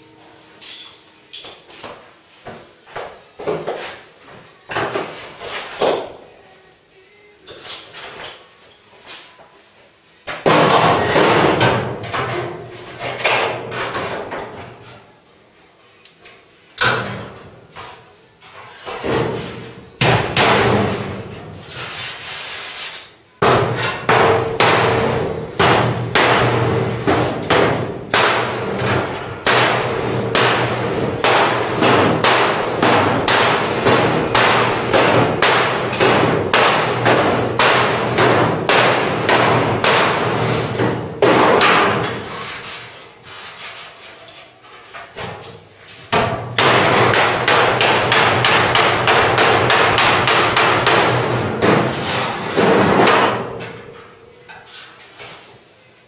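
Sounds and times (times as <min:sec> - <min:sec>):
mallet striking steel panel: 0:20.0 - 0:21.2, 0:23.4 - 0:42.2, 0:46.2 - 0:53.6.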